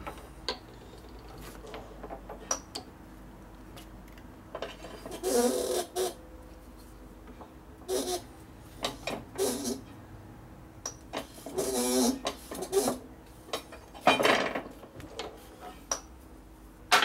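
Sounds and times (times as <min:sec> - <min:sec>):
metal rasping scrape: 0:11.2 - 0:13.0.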